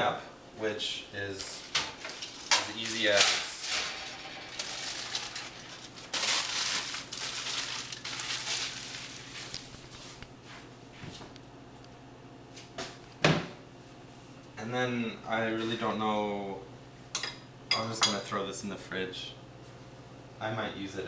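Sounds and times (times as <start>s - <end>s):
aluminium foil crumpling: 1.5s - 10.1s.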